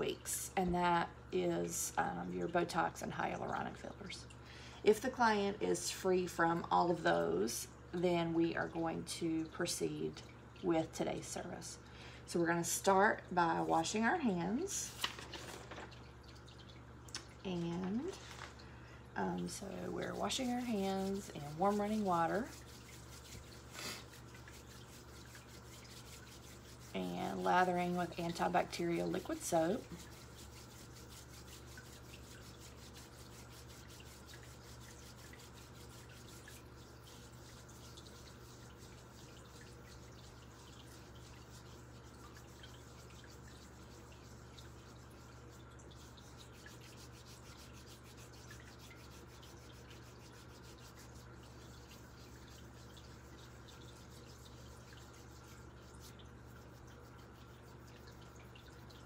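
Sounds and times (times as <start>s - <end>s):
soapy hands rubbing: 12.8s - 15.7s, 19.2s - 59.0s.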